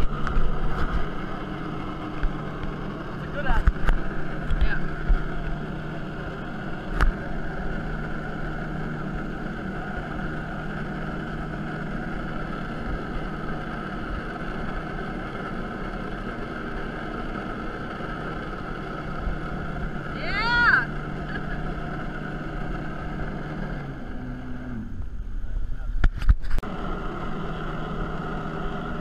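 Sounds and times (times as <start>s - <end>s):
jet ski engine running: 0.0s - 29.0s.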